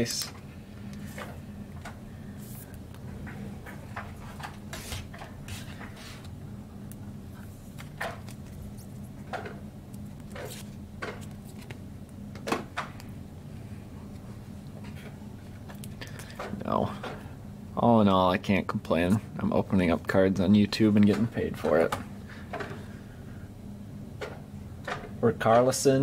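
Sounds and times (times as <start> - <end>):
steady low hum: 0.0 - 26.0
trading cards being handled: 3.7 - 12.2.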